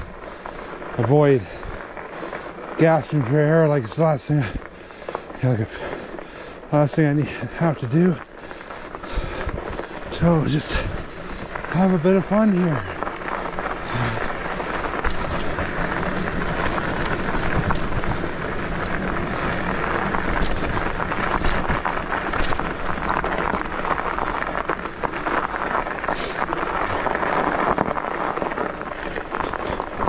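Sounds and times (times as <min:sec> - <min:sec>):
bike tyres on snowy trail: 0:00.0 - 0:30.0
bike knocks and rattles: 0:14.3 - 0:30.0.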